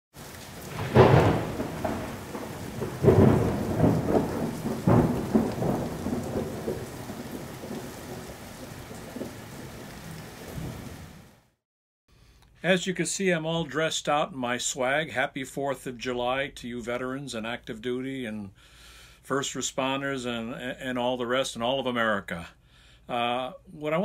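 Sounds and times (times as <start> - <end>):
thunder rumbling: 0.2 - 11.3
steady rain: 0.2 - 11.6.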